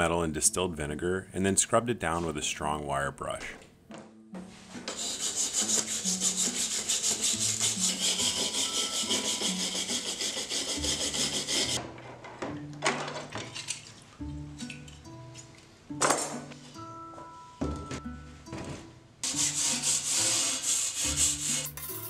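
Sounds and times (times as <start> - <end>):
wire brush scraping metal: 4.9 - 11.8, 19.2 - 22.0.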